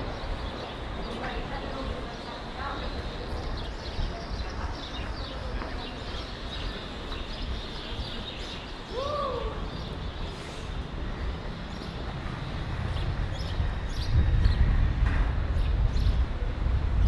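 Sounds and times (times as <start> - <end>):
distant voices: 0.0 - 14.1
traffic: 0.0 - 17.0.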